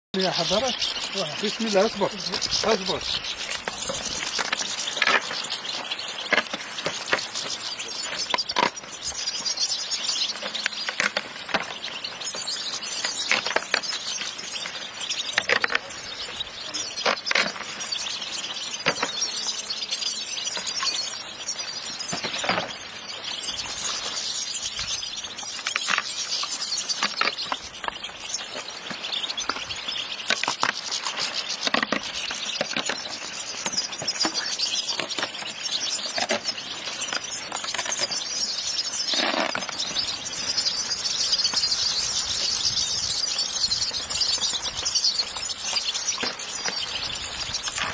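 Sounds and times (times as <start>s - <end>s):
finches chirping and twittering: 0.2s - 47.9s
clicks and rustles: 0.3s - 9.6s, 10.3s - 16.0s, 25.1s - 41.8s.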